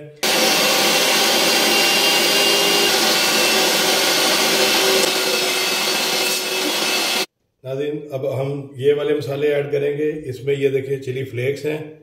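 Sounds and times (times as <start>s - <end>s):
electric meat grinder whirring: 0.2s - 7.3s.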